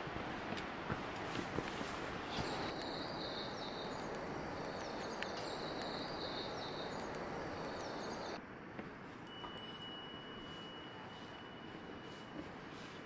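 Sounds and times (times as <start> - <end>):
steady rushing hiss: 0.0 - 8.4.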